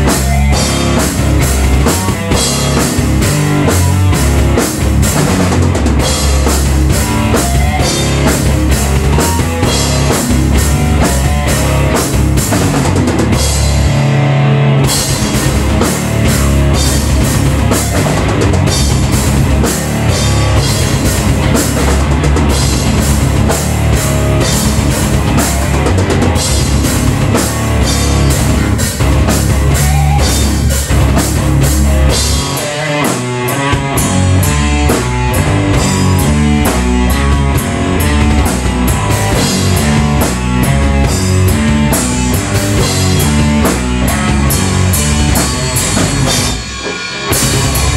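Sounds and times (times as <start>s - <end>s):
drum kit and cymbals: 0.0s - 14.2s, 14.8s - 47.9s
amplified electric guitar: 0.0s - 47.9s.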